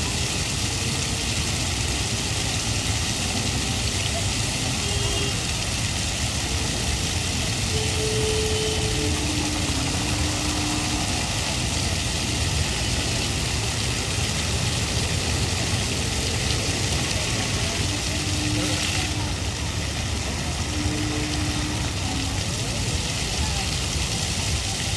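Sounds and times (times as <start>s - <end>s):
fountain water splashing: 0.0s - 24.9s.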